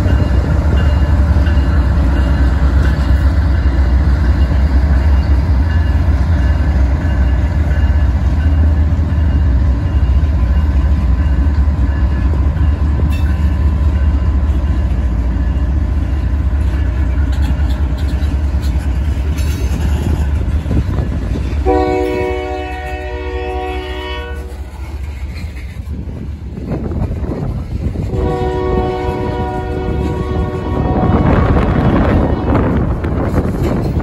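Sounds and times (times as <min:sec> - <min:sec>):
locomotive engine rumble: 0:00.0 - 0:34.0
train wheels on rails: 0:00.0 - 0:34.0
train horn chord: 0:21.6 - 0:24.6, 0:28.1 - 0:31.6.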